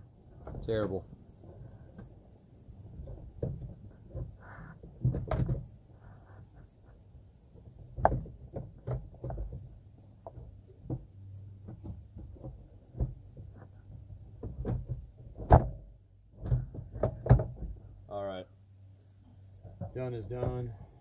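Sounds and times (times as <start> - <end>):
plastic shroud knocking and scraping: 2.9 - 5.8, 7.6 - 17.9.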